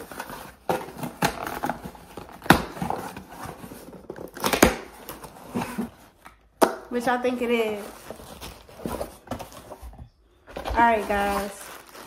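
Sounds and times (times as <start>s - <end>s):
paper and cardboard ripping: 10.7s - 12.0s.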